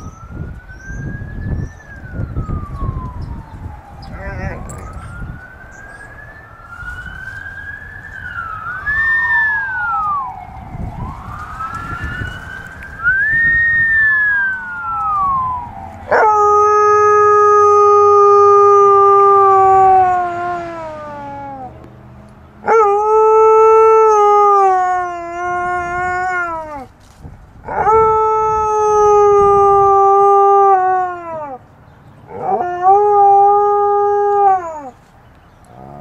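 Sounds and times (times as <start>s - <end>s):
dog howling: 14.1s - 21.7s, 22.6s - 26.9s, 27.7s - 31.6s, 32.3s - 35.0s.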